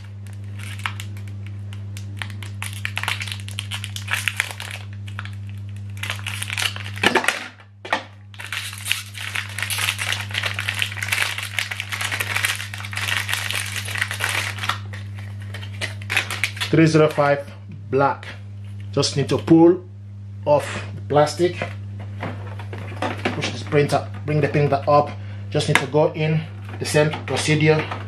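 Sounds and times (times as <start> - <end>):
plastic packaging crinkling: 0.0 - 17.4
low electrical hum: 0.0 - 28.0.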